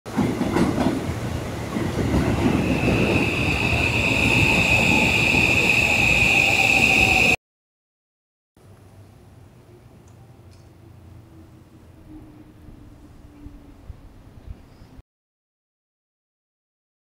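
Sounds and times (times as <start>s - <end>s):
train rumbling on rails: 0.1s - 7.4s
high steady whine: 2.6s - 7.4s.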